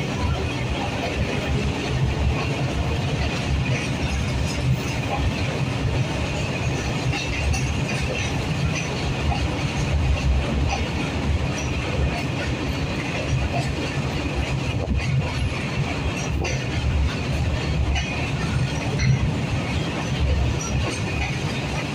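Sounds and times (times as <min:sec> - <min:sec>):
freight train wheels rumbling on rails: 0:00.0 - 0:21.9.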